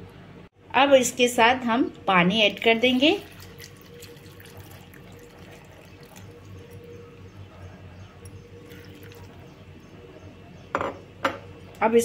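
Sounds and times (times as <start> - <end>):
water trickling and dripping: 2.4 - 7.2, 8.2 - 9.6.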